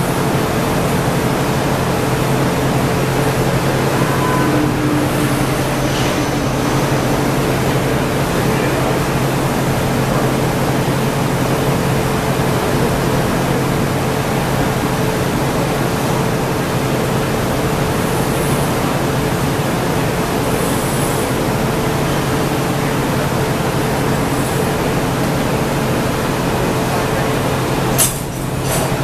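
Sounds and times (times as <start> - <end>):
gas burner rushing: 0.0 - 27.0
low hum: 1.2 - 13.8.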